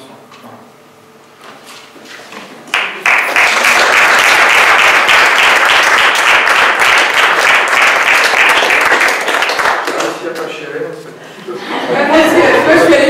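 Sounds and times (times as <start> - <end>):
audience applauding: 2.7 - 10.4.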